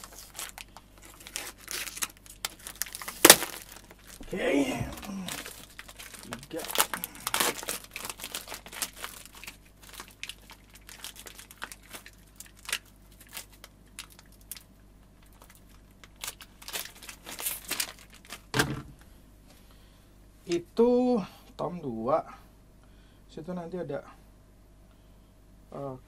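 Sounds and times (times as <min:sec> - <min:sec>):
plastic packaging crinkling: 0:00.0 - 0:18.8.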